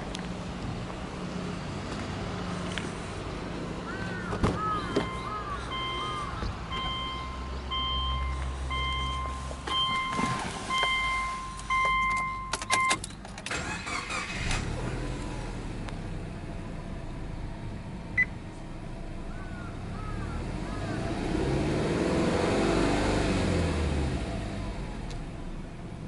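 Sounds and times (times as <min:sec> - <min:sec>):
car engine cranking and idling: 0:00.0 - 0:26.0
car warning chime beeping: 0:05.0 - 0:14.4.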